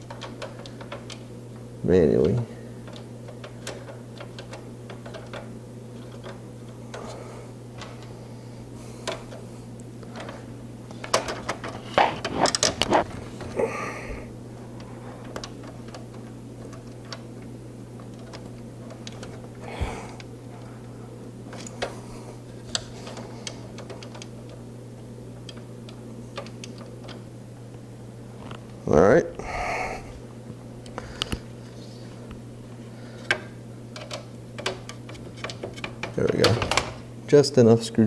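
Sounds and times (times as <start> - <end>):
screwdriver and screws clicking on metal: 0.0 - 1.2, 2.2 - 7.2, 15.2 - 17.3, 18.0 - 19.5, 22.6 - 24.6, 33.2 - 36.9
steady low hum: 0.0 - 38.0.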